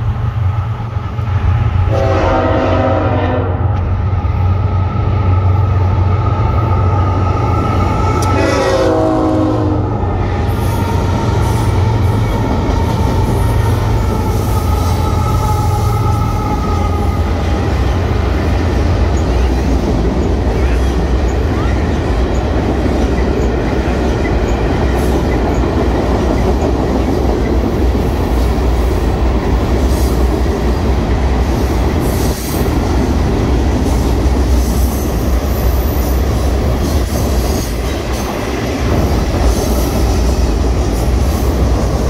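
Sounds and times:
locomotive engine rumble: 0:00.0 - 0:42.0
train cars rolling over bridge: 0:00.0 - 0:42.0
train horn: 0:01.8 - 0:03.8, 0:08.1 - 0:10.0.

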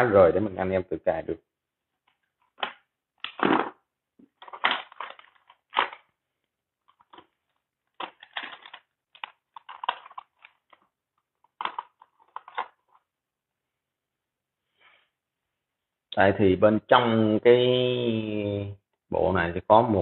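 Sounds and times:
plastic box handling rustle: 0:02.0 - 0:13.1.

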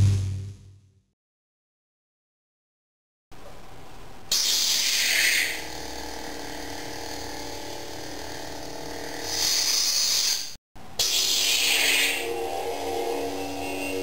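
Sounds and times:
lightsaber electric hum: 0:04.4 - 0:09.6, 0:11.0 - 0:14.0.

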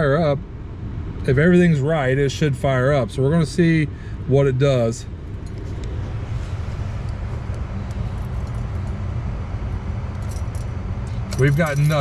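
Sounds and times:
low hum: 0:00.0 - 0:12.0
keys jingling: 0:07.9 - 0:09.0, 0:10.1 - 0:12.0.

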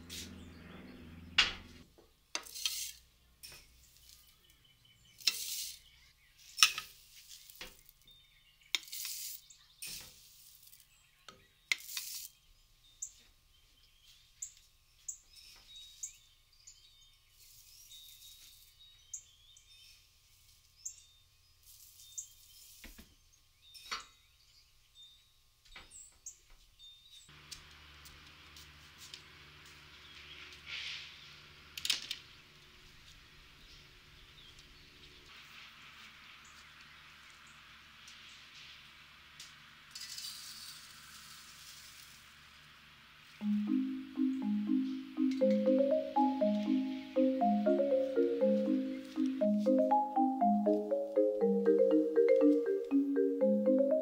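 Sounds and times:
small birds chirping: 0:03.1 - 0:27.3.

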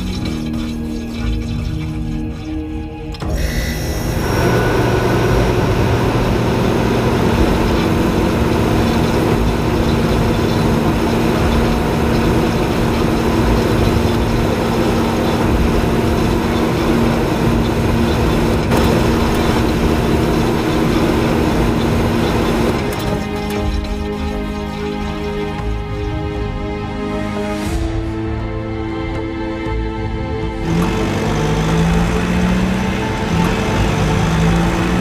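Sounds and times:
constant low hum: 0:00.0 - 0:26.8
tank engine heavy rumble: 0:04.2 - 0:24.2, 0:30.6 - 0:35.0.

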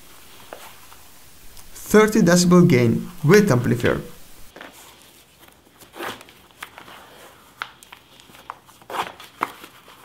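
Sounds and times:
low hiss: 0:00.0 - 0:04.5.

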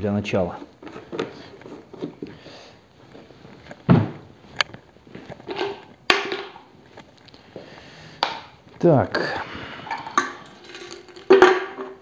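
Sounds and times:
plastic fuel canister handling: 0:00.5 - 0:02.4
thump: 0:03.9 - 0:04.2.

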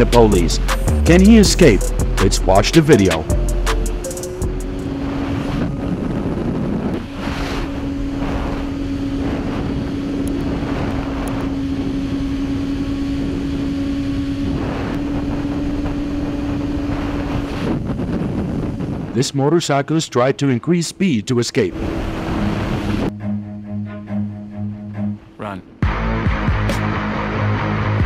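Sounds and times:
motorcycle engine running: 0:00.0 - 0:19.2
wind rush on microphone: 0:03.2 - 0:19.6, 0:21.6 - 0:23.2.

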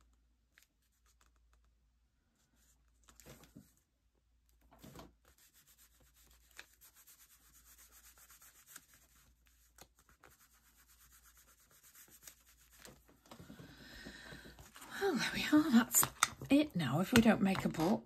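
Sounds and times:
fingers rubbing over paper: 0:05.2 - 0:13.2.

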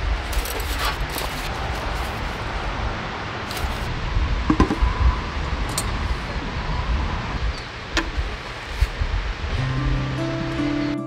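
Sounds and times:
stove knocking on table: 0:04.5 - 0:04.9.

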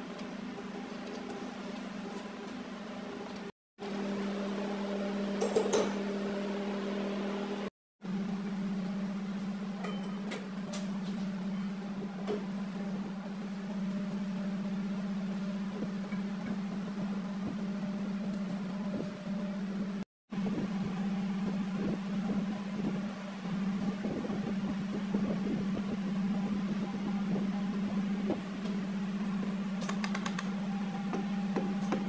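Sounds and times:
motor humming: 0:11.0 - 0:32.0.

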